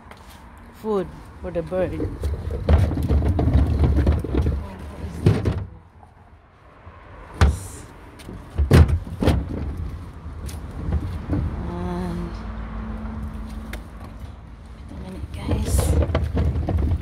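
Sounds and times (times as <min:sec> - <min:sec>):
wind rumbling on microphone: 0:07.2 - 0:12.8.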